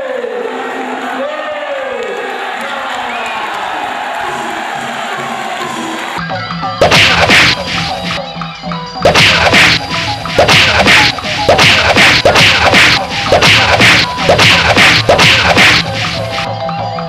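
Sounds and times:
drum beats dropping in pitch: 0:05.2 - 0:16.7
cymbal crashes: 0:06.8 - 0:08.2, 0:09.1 - 0:16.5.

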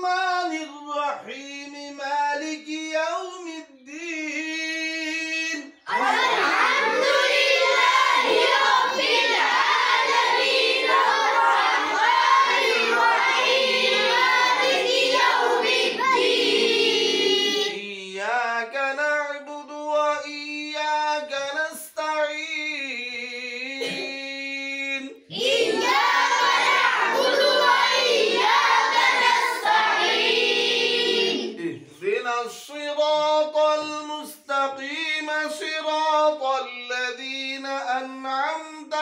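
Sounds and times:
children chanting together: 0:05.9 - 0:17.8, 0:25.3 - 0:31.7.

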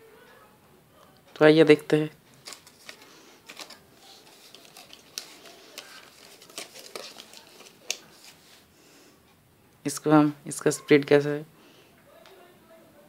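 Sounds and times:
blister pack crinkling open: 0:02.3 - 0:08.6.

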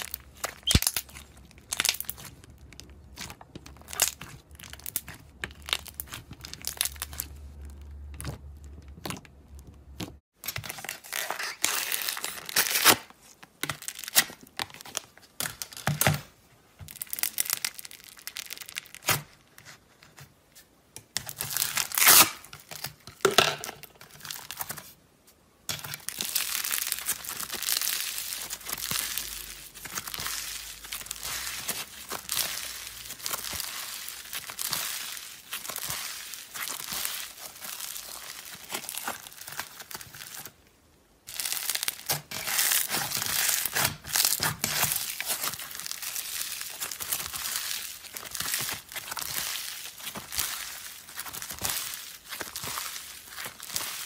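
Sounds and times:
foam bead slime crackling: 0:00.0 - 0:15.8, 0:16.9 - 0:19.8, 0:25.7 - 0:54.0.

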